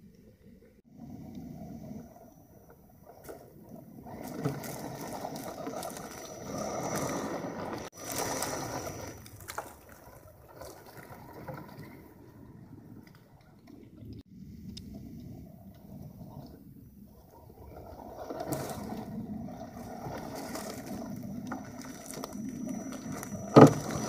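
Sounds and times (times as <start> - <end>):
tyres crunching leaves and twigs: 4.0 - 11.4, 19.8 - 24.0.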